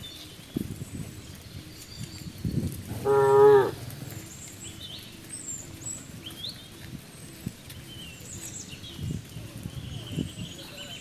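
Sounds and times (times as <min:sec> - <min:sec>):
birds chirping: 0:00.0 - 0:11.0
cow mooing: 0:02.9 - 0:03.8.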